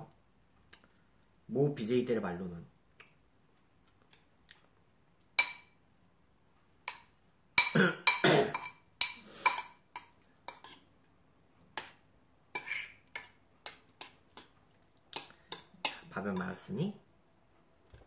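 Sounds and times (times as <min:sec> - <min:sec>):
metal spoon clinking against bowl: 0:05.4 - 0:05.8, 0:06.8 - 0:10.8.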